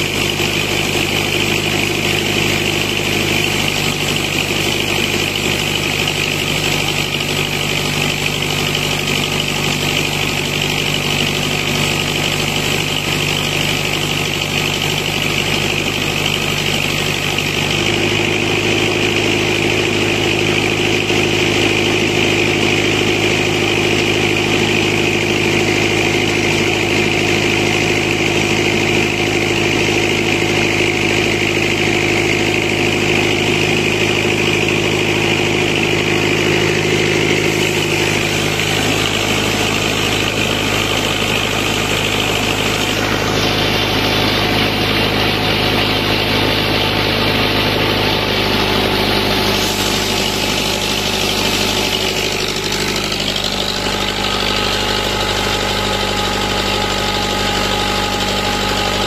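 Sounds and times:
tractor engine running: 0:00.0 - 0:59.0
saw blade cutting log: 0:33.4 - 0:59.0
hum: 0:48.8 - 0:59.0.

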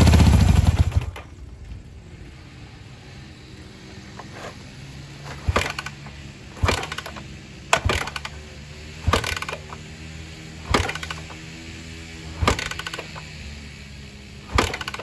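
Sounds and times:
motorcycle kick-starter clattering: 0:05.2 - 0:08.4, 0:09.0 - 0:09.9, 0:10.6 - 0:11.5, 0:12.3 - 0:13.4, 0:14.5 - 0:15.0.

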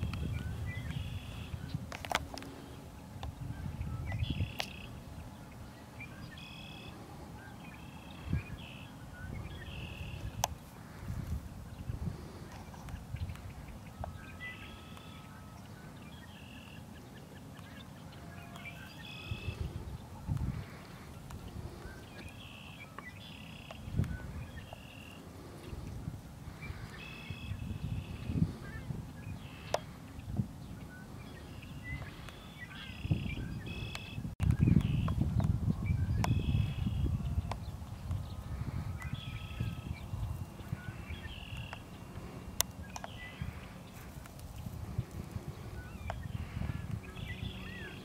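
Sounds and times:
small birds chirping: 0:00.0 - 0:48.0.

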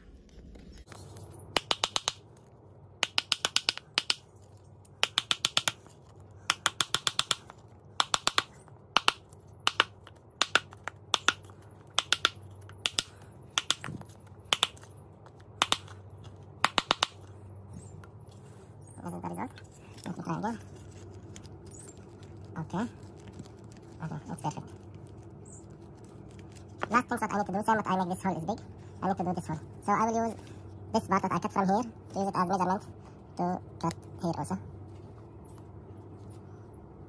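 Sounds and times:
hand tool clicking on plastic: 0:03.0 - 0:04.2, 0:05.0 - 0:05.9, 0:06.5 - 0:16.0.

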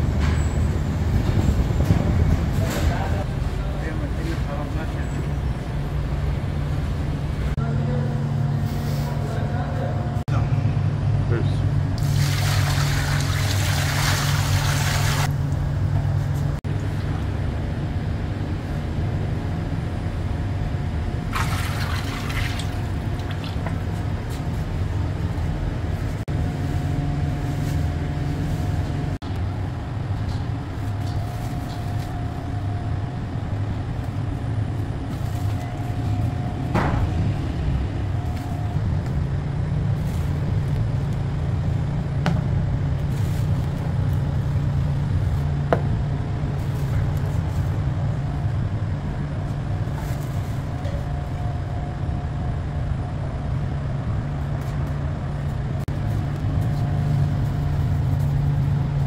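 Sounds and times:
low machine hum: 0:00.0 - 0:59.0.

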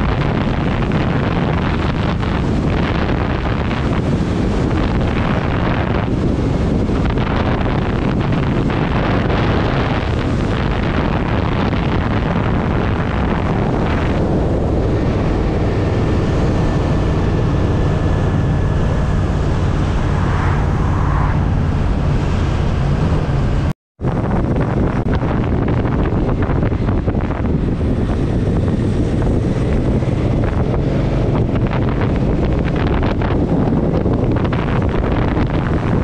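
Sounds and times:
motorcycle engine running: 0:00.0 - 0:20.2, 0:21.5 - 0:36.0
wind buffeting microphone: 0:00.0 - 0:36.0.

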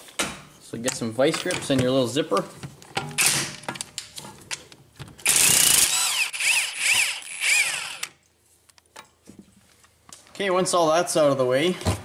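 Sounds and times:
cut-off tool cutting metal: 0:05.2 - 0:08.1.

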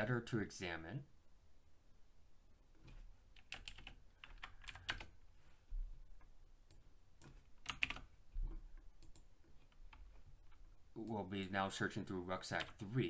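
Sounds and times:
keyboard typing: 0:02.8 - 0:05.2, 0:06.7 - 0:11.5.

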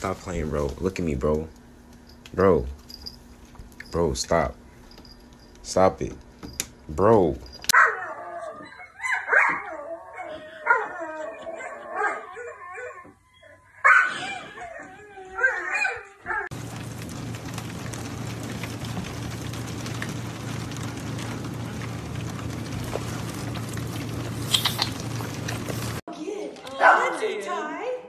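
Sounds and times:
steady hiss with low hum: 0:00.0 - 0:07.7
dog whining and howling: 0:07.7 - 0:16.5.

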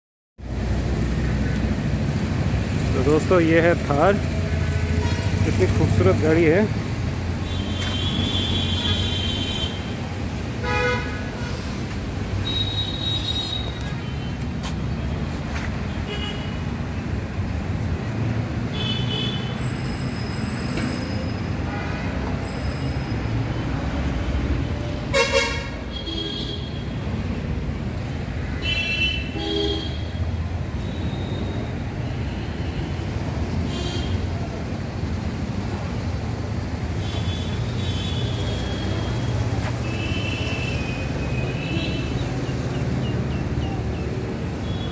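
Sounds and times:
road traffic rumble: 0:00.4 - 0:44.9
vehicle horn toots: 0:25.1 - 0:26.8.

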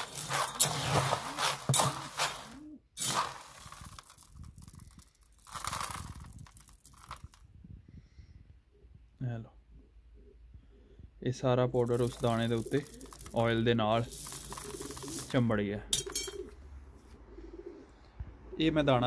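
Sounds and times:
metal scoop digging in seed: 0:00.0 - 0:07.4, 0:11.8 - 0:15.4
seed rustling and crunching: 0:00.0 - 0:07.4, 0:11.8 - 0:16.2.

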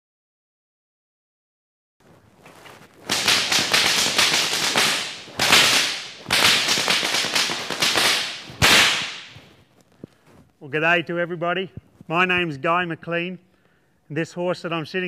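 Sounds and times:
whips cracking: 0:03.0 - 0:09.5.

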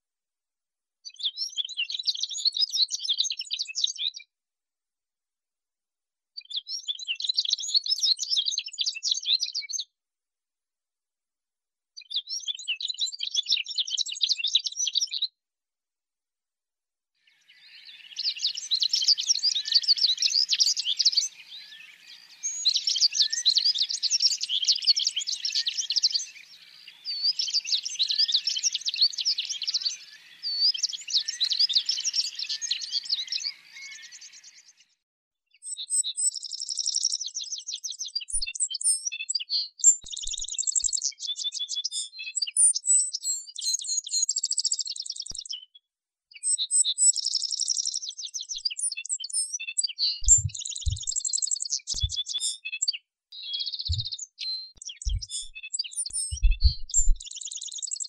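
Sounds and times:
canary singing: 0:50.1 - 0:52.6, 0:53.5 - 0:57.8.

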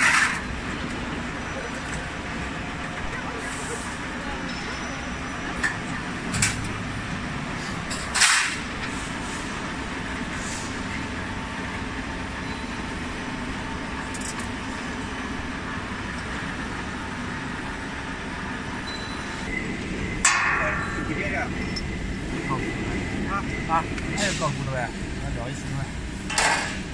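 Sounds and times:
machine humming: 0:11.5 - 0:26.3.

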